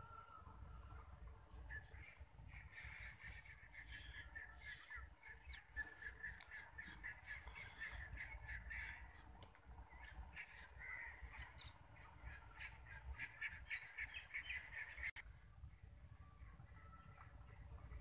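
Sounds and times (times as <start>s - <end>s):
crows cawing: 10.4s - 11.7s.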